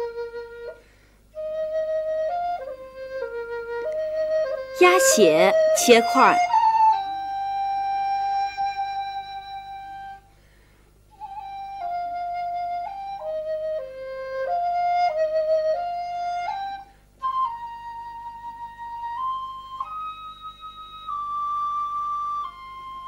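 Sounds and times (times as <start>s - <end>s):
flute playing slow melody: 0.0s - 0.8s, 1.4s - 4.7s, 11.2s - 23.0s.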